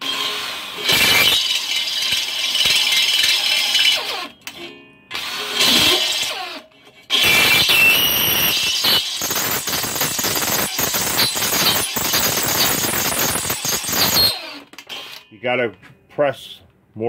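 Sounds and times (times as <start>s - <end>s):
drill grinding steel: 0.0s - 4.4s, 5.1s - 15.2s.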